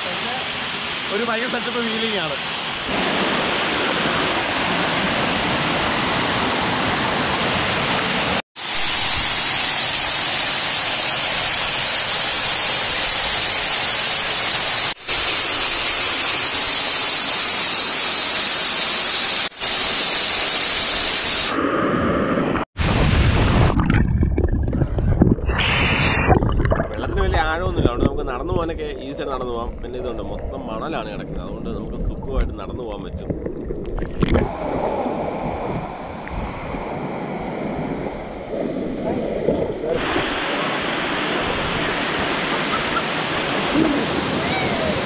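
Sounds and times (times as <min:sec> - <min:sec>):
waterfall rushing: 0:00.0 - 0:21.6, 0:40.0 - 0:45.0
muffled underwater water sound: 0:21.4 - 0:45.0.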